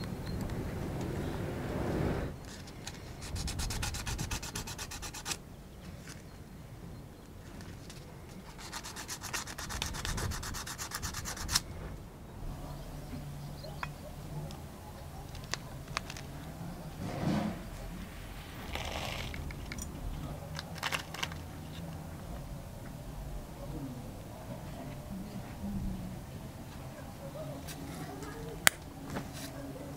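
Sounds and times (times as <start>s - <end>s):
sandpaper rubbing on metal: 3.2s - 5.4s, 8.5s - 11.6s.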